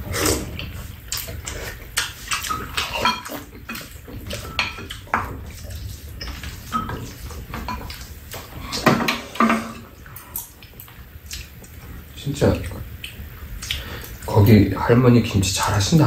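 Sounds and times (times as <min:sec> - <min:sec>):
utensils clinking on bowls: 0:02.0 - 0:10.5.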